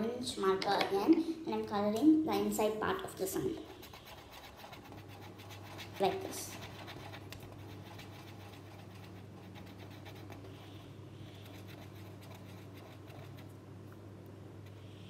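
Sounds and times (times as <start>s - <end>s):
steady low hum: 0.0s - 15.0s
marker scratching on paper: 3.3s - 13.5s.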